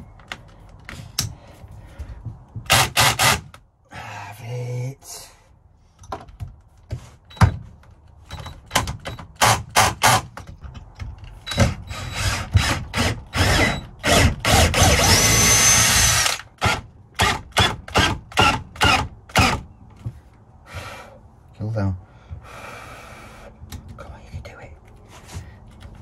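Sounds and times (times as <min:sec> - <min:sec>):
cordless drill running: 0:11.9 - 0:16.4.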